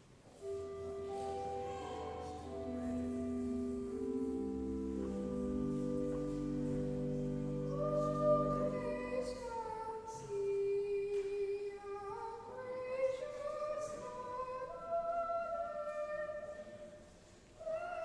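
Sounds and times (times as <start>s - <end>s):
organ chord: 0.4s - 9.7s.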